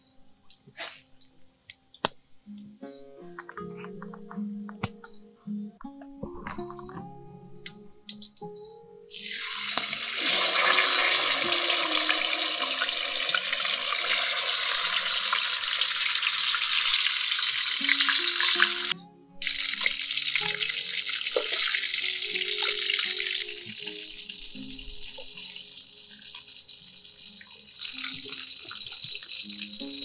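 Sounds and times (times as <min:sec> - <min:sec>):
fish sizzling in hot oil: 0:09.1 - 0:30.0.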